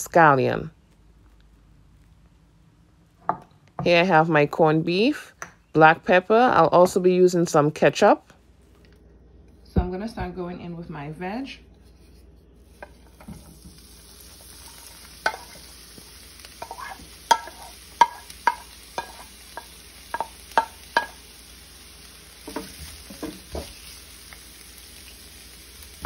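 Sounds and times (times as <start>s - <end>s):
vegetables sizzling in hot oil: 12.6s - 26.0s
wooden spoon knocking on pan: 16.6s - 21.2s, 22.4s - 23.8s.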